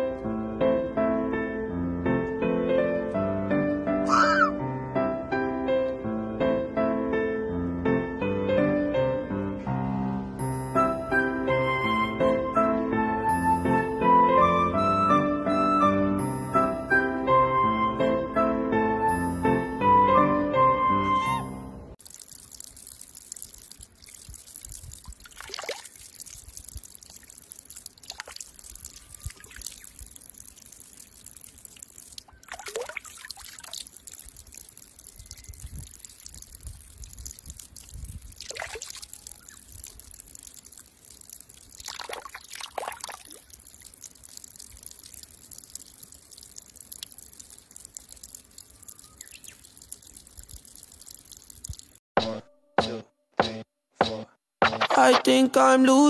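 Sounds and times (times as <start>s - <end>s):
water trickling onto rocks: 22.0s - 52.0s.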